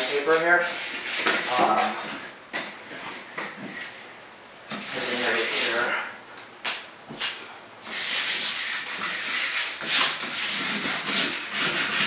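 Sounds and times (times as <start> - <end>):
hand sanding a door: 4.7 - 5.9, 7.2 - 12.0.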